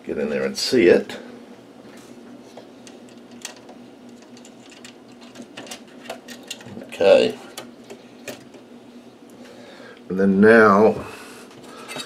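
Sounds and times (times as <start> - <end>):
faint steady hum: 0.0 - 12.0
small metal parts clicking: 2.8 - 6.7.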